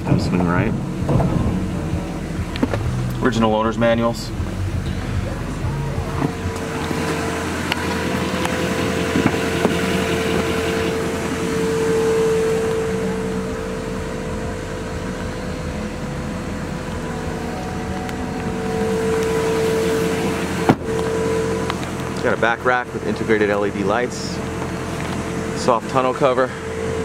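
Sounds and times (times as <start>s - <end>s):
diesel engine idling: 0.0s - 27.0s
sharp knock: 1.0s - 2.9s.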